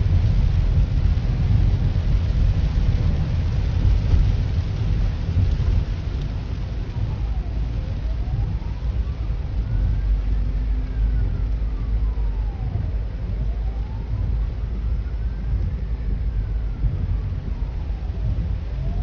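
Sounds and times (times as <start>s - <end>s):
low rumble inside car in rain: 0.0s - 19.0s
ambulance siren wailing: 5.3s - 19.0s.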